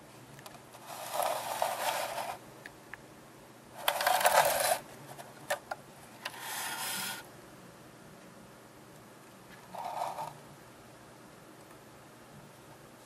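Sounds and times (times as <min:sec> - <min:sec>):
plastic model scraping on paper: 0:00.8 - 0:02.4, 0:03.8 - 0:04.8, 0:06.3 - 0:07.2, 0:09.7 - 0:10.4.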